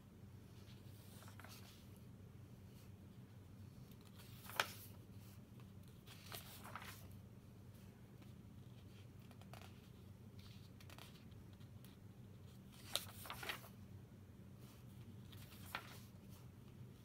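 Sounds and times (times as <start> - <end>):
book pages turning: 0.6 - 2.0, 3.8 - 7.2, 8.2 - 13.8, 14.6 - 17.0.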